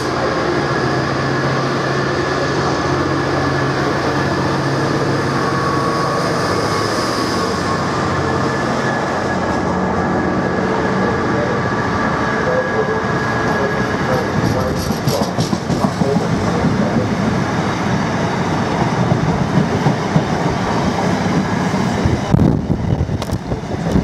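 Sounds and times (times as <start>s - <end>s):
diesel locomotive engine: 0.0s - 24.0s
freight wagons rumbling and clattering: 14.2s - 17.2s.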